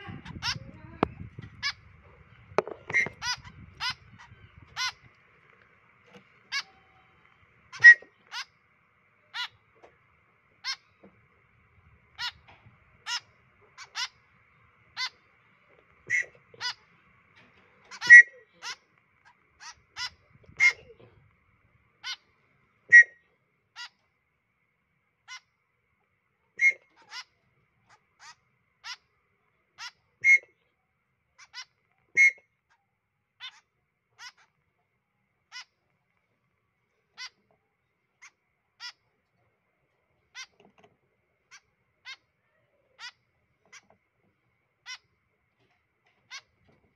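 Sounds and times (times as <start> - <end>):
fledgling birds begging calls: 0.0 - 9.8, 10.4 - 24.1, 25.2 - 25.7, 26.6 - 30.6, 31.3 - 34.6, 35.4 - 35.8, 37.0 - 39.2, 40.2 - 40.6, 41.3 - 44.0, 44.8 - 45.3.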